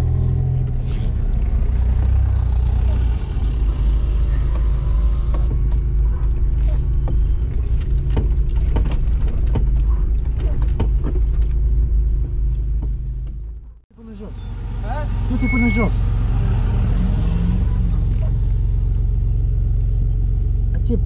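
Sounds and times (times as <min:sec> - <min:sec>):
off-road vehicle engine running: 0:00.0 - 0:21.0
knocks and rattles in cab: 0:03.2 - 0:13.9.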